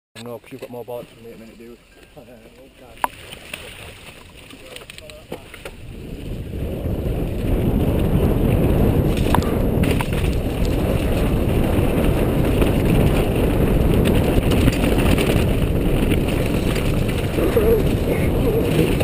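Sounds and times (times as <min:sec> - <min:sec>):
bike tyres rattling on stones: 0:03.0 - 0:19.0
wind buffeting microphone: 0:04.2 - 0:19.0.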